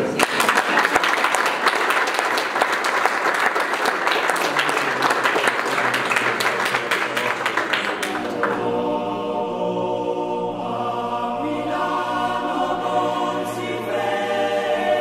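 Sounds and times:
people clapping: 0:00.0 - 0:08.8.

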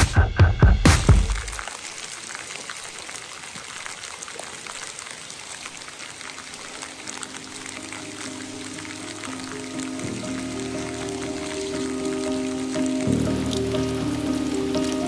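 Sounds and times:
rain pattering: 0:00.9 - 0:15.0
faint music notes: 0:06.5 - 0:15.0.

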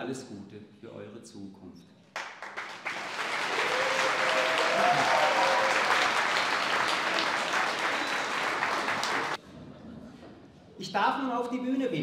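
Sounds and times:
audience applauding: 0:02.2 - 0:09.4.

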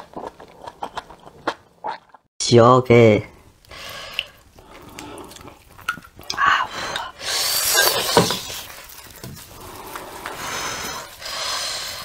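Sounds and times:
wet crackling and squelching: 0:03.6 - 0:12.0
sauce splattering: 0:03.8 - 0:10.3.

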